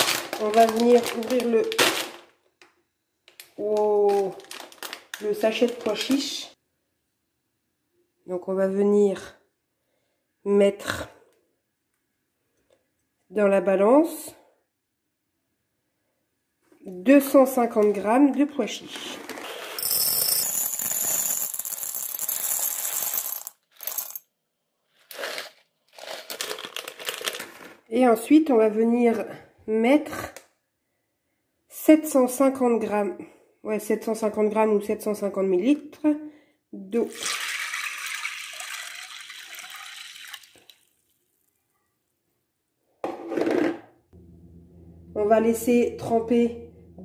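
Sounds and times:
dried chickpeas rattling into glass bowl: 0:19.8 - 0:24.2, 0:25.2 - 0:27.7
water pouring into a bowl: 0:37.1 - 0:41.4.

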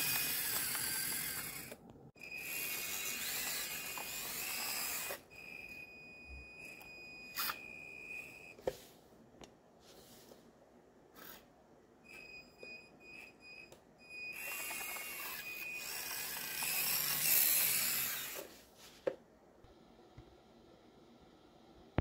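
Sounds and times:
toy electric motors whining: 0:00.0 - 0:05.8, 0:06.6 - 0:08.4, 0:14.2 - 0:18.5.

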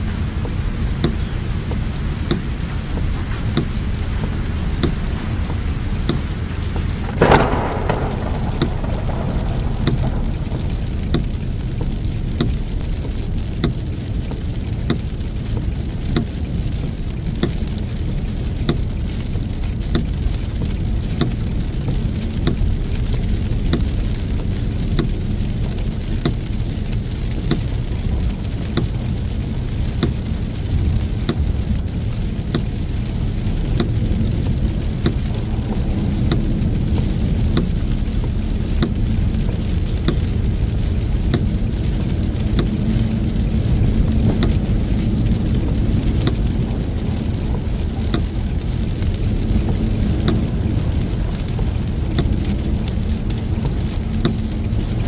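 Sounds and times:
heavy rain beating on a car: 0:00.0 - 0:55.0
road and wind rumble: 0:00.0 - 0:55.0
faint ticks: 0:00.4 - 0:55.0
sharp loud hit: 0:07.1 - 0:11.8.

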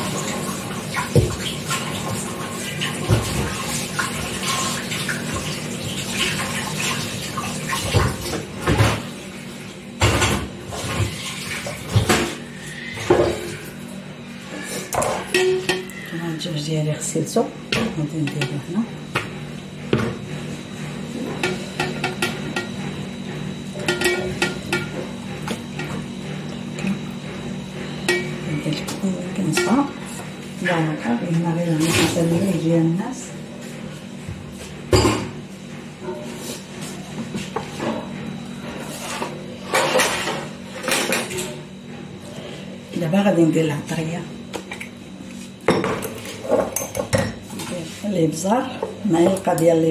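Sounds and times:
kitchen tap running: 0:00.0 - 0:09.1.

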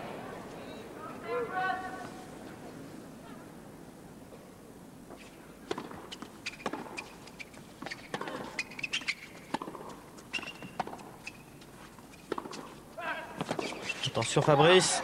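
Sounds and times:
shoes squeaking: 0:05.1 - 0:15.0
tennis ball knocks: 0:09.5 - 0:10.0, 0:12.3 - 0:12.7.

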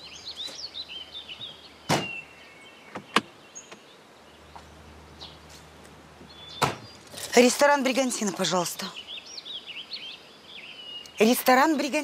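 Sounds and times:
car doors thudding shut: 0:01.9 - 0:02.2, 0:06.3 - 0:07.0.

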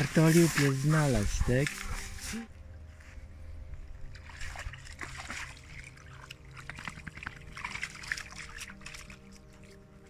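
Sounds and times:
dog splashing in puddle: 0:04.1 - 0:09.8.

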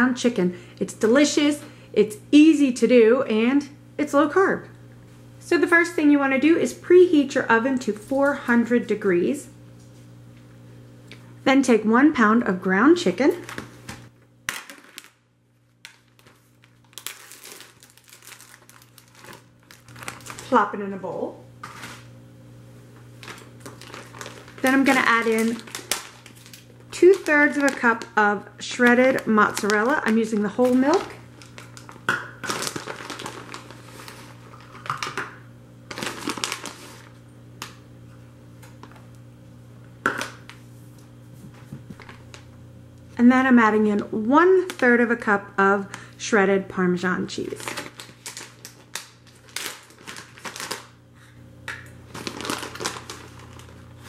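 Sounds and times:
plastic film crinkling and tearing: 0:13.4 - 0:20.6, 0:21.6 - 0:22.1, 0:23.2 - 0:28.2, 0:28.8 - 0:35.2, 0:35.9 - 0:37.2, 0:47.4 - 0:51.0, 0:52.0 - 0:54.0.

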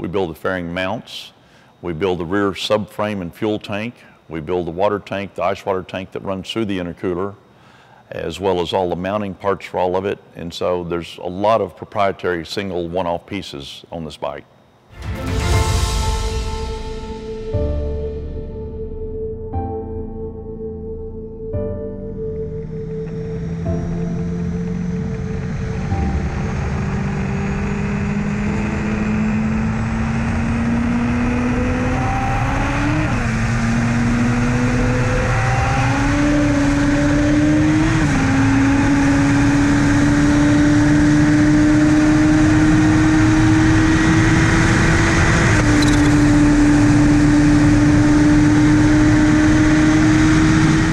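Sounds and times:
motorcycle engine accelerating: 0:22.0 - 0:50.9.

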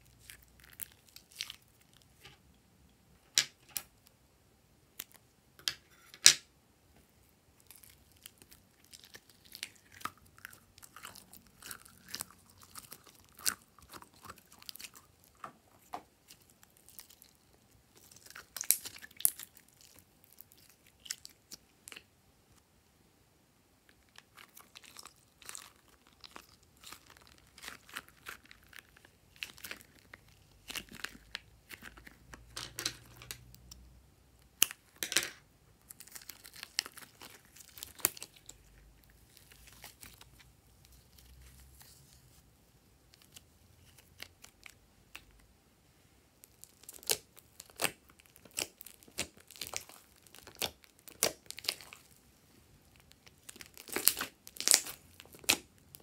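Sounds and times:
slime wet crackling and pops: 0:46.4 - 0:52.2, 0:53.0 - 0:55.8.

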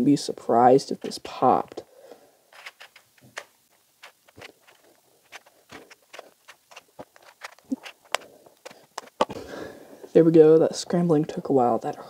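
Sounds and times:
puzzle cube plastic clicks: 0:02.6 - 0:09.4.

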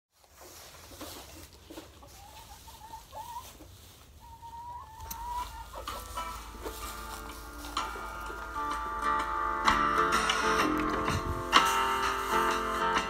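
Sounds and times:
hens calling: 0:00.6 - 0:13.0
music: 0:05.6 - 0:13.0.

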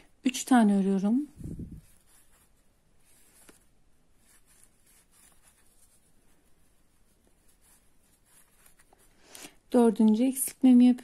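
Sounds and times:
crochet hook rubbing yarn: 0:01.2 - 0:09.1.

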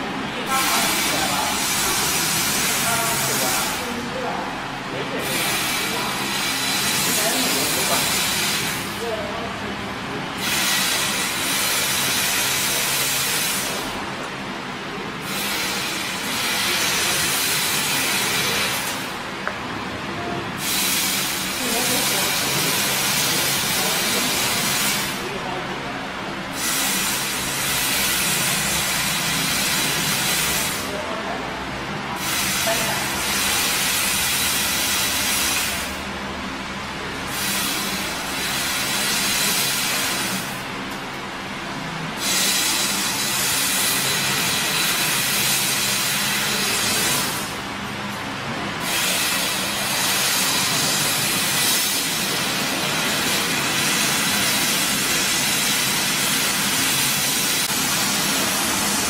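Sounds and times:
machine hum: 0:00.0 - 0:59.0
laser cutter gas jet hissing: 0:00.4 - 0:04.2, 0:05.1 - 0:09.1, 0:10.3 - 0:14.0, 0:15.2 - 0:19.2, 0:20.6 - 0:25.3, 0:26.5 - 0:31.0, 0:32.2 - 0:36.1, 0:37.2 - 0:40.7, 0:42.2 - 0:47.6, 0:48.8 - 0:59.0
assist gas hissing: 0:10.4 - 0:13.9, 0:20.6 - 0:25.2, 0:26.5 - 0:30.9, 0:42.2 - 0:47.6.

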